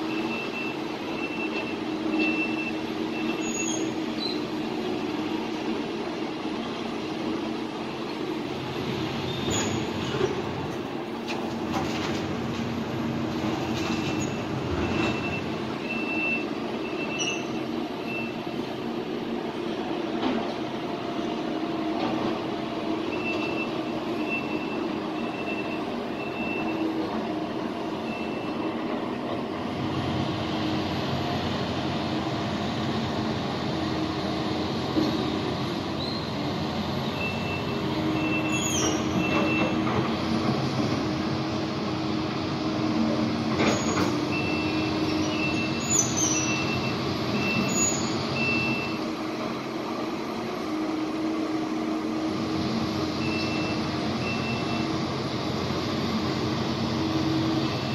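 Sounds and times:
reversing alarm beeping: 0:00.1 - 0:03.6, 0:14.0 - 0:18.4, 0:23.1 - 0:26.9, 0:28.0 - 0:28.7, 0:37.2 - 0:39.8, 0:48.4 - 0:49.1, 0:53.2 - 0:55.0
short high squeals: 0:02.2 - 0:04.4, 0:17.0 - 0:18.3, 0:37.2 - 0:39.6, 0:43.7 - 0:49.0.

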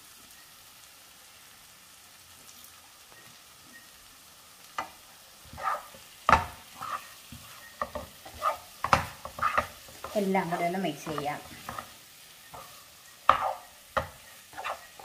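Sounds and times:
food sizzling in a frying pan: 0:00.0 - 0:15.0
wooden spatula scraping a pan: 0:04.8 - 0:15.0.

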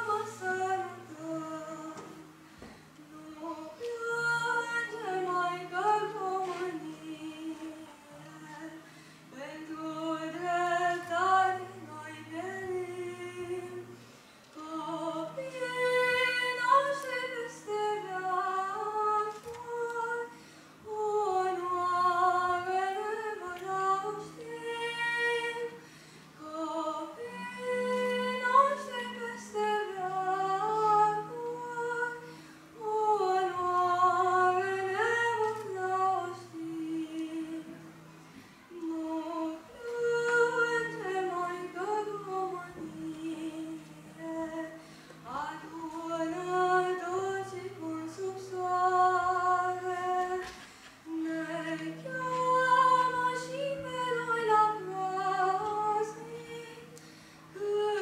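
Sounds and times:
long held low backing notes: 0:00.0 - 0:58.0.

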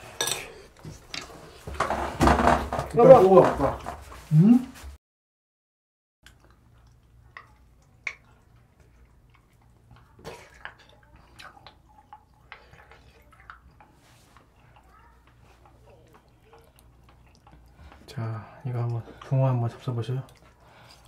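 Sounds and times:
ladle and cutlery clinking: 0:00.1 - 0:00.6.

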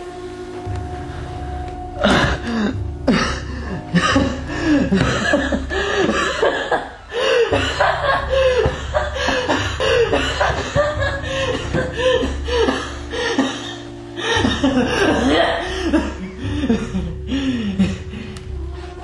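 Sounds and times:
low steady hum: 0:00.0 - 0:19.0
man chuckling: 0:02.1 - 0:12.7.

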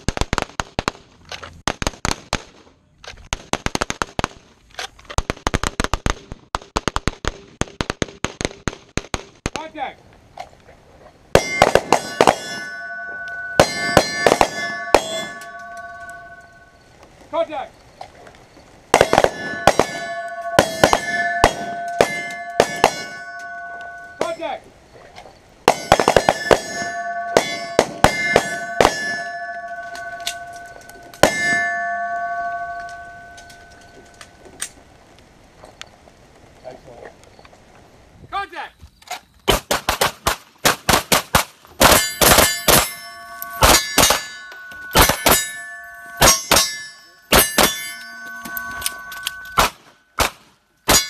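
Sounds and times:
pistol shots: 0:11.4 - 0:16.4, 0:18.9 - 0:24.5, 0:25.7 - 0:30.6, 0:39.5 - 0:45.6, 0:46.2 - 0:51.0
steel targets ringing: 0:11.4 - 0:17.6, 0:18.9 - 0:24.6, 0:25.7 - 0:34.6, 0:41.8 - 0:50.2.

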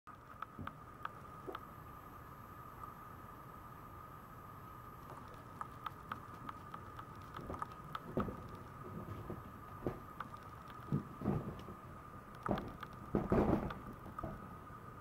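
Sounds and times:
dog claws clicking on tiles: 0:05.6 - 0:08.6.

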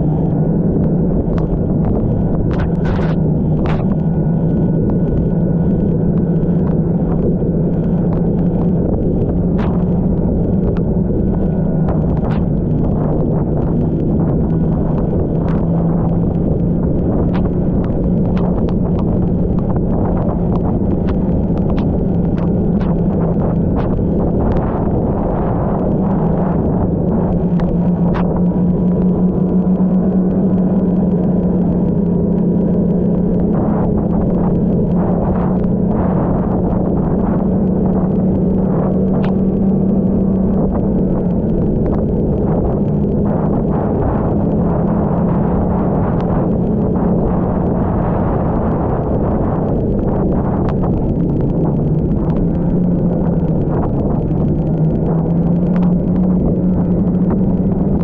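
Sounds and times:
snowmobile engine running: 0:00.0 - 0:58.0
sharp clicks and knocks: 0:11.9 - 0:24.7.

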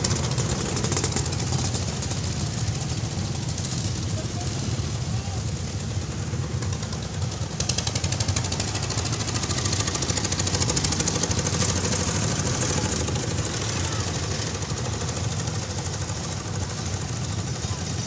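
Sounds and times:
diesel engine chugging: 0:00.0 - 0:18.0.

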